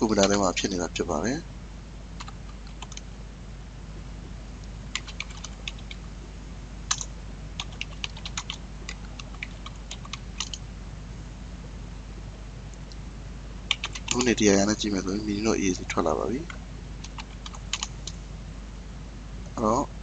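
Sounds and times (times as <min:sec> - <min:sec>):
steady low hum: 0:00.0 - 0:20.0
typing on keyboard: 0:02.2 - 0:03.0, 0:04.9 - 0:06.0, 0:06.9 - 0:10.6, 0:13.7 - 0:14.3, 0:17.0 - 0:18.2.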